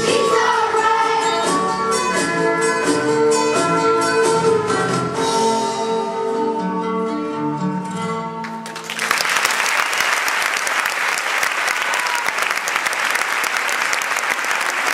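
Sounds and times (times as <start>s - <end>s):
audience applause: 8.5s - 14.9s.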